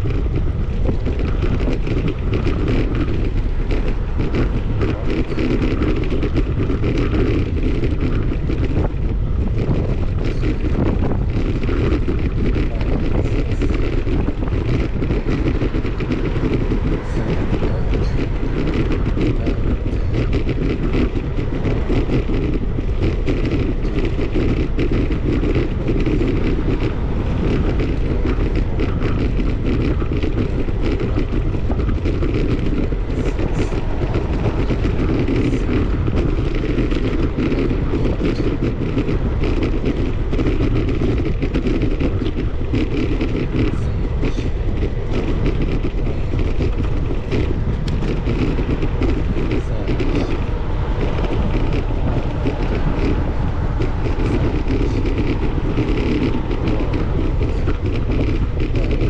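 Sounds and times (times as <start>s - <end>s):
bicycle road vibration rumble: 0.0s - 59.0s
wind on microphone: 0.0s - 59.0s.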